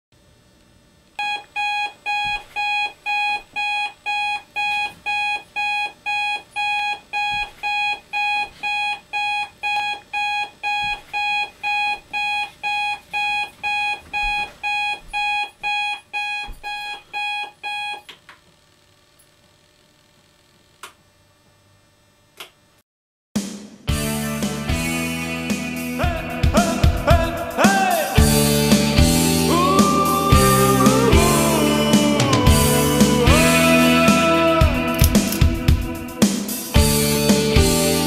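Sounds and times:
alarm clock beeping: 1.2 - 18.0.

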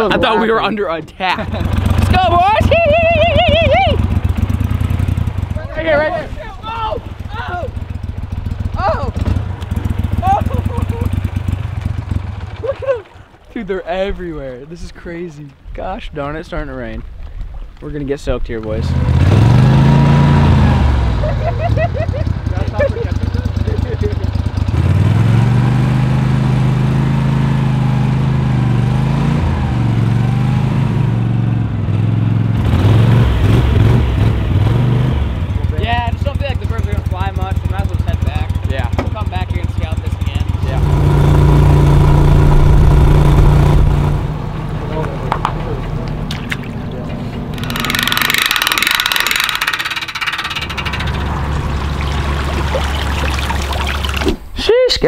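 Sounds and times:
vehicle engine humming: 0.0 - 54.6
outboard motor drone: 1.4 - 13.4, 18.9 - 54.4
winch ratcheting: 46.3 - 54.3.

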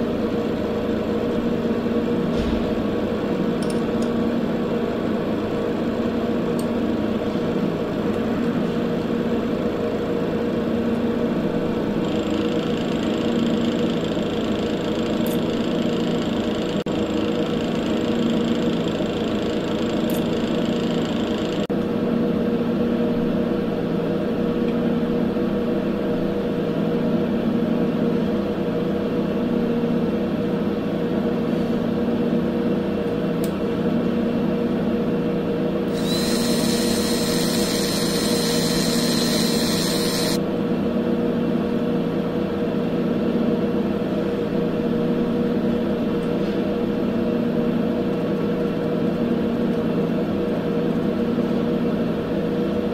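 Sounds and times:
steady low hum: 33.4 - 49.7
cordless drill whining: 35.9 - 40.4.

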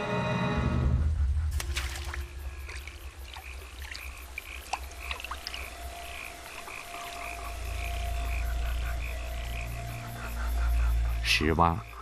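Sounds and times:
low rumble: 0.3 - 3.3
frogs croaking rapidly: 1.6 - 12.0.

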